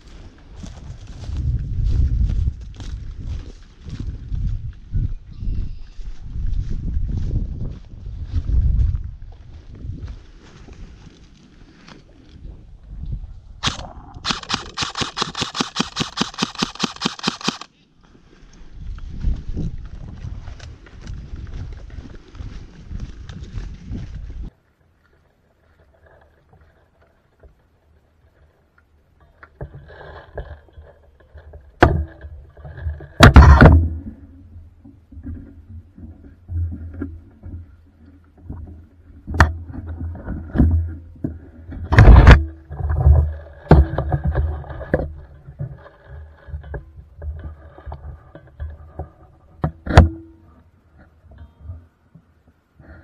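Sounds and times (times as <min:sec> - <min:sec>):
knocks and rattles: 0:29.6 - 0:37.8, 0:38.4 - 0:50.4.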